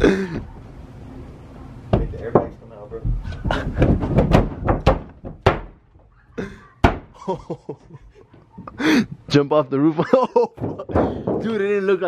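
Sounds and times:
feet stomping on metal car roof: 3.1s - 5.9s, 6.8s - 7.2s, 10.6s - 11.8s.

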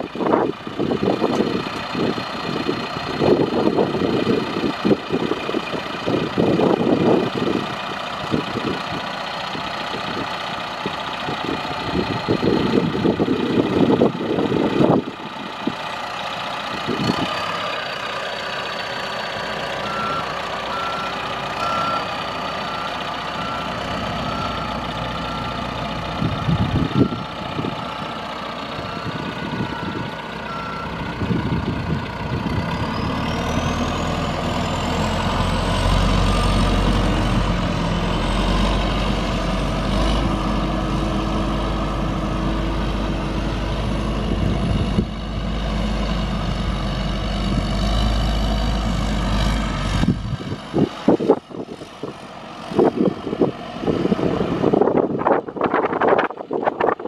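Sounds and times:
diesel backhoe engine running: 0.0s - 57.0s
high engine whine: 0.0s - 57.0s
reversing alarm beeping: 19.8s - 27.4s, 28.8s - 31.1s.

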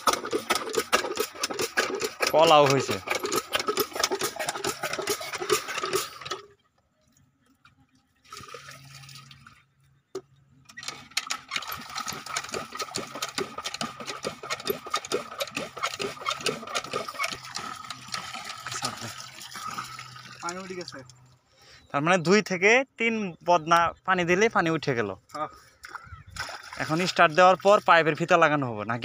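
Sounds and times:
diesel engine knocking: 0.0s - 6.4s
water pouring into pump: 0.0s - 6.6s, 7.9s - 9.9s, 10.7s - 21.3s, 25.3s - 28.8s.

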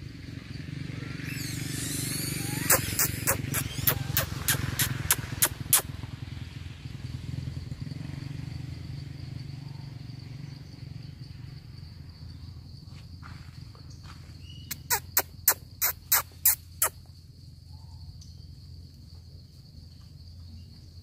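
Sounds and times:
high insect drone: 0.0s - 6.0s, 6.9s - 21.0s
sharp clicks: 2.6s - 5.9s.

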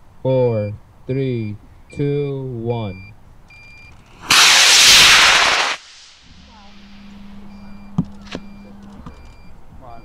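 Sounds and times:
rocket motor hissing rush: 4.1s - 6.3s.

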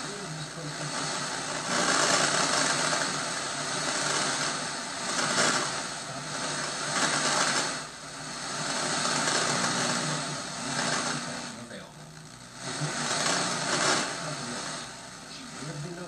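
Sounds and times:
tv static hiss: 0.0s - 16.0s.

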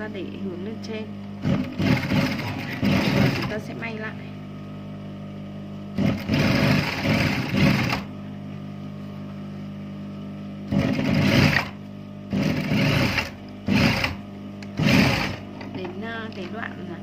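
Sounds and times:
motor hum: 0.0s - 17.0s
sewing machine stitching: 1.4s - 3.6s, 6.0s - 8.1s, 10.7s - 14.2s, 14.8s - 15.8s.

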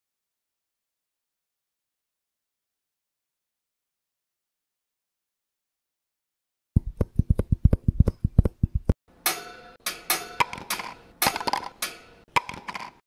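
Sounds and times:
rapid low taps: 6.8s - 9.0s.

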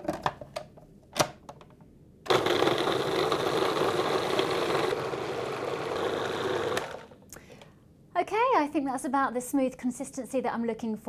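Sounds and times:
food processor motor running: 2.3s - 7.2s.

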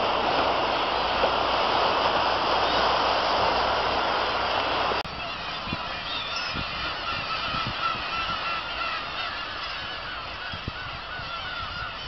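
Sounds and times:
gulls calling in a chorus: 3.8s - 12.0s.

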